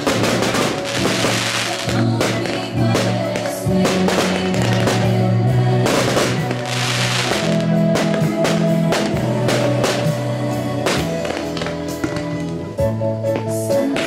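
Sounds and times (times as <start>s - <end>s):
firework shells bursting: 0.0s - 5.2s, 5.9s - 10.2s
music with sustained notes: 0.0s - 14.0s.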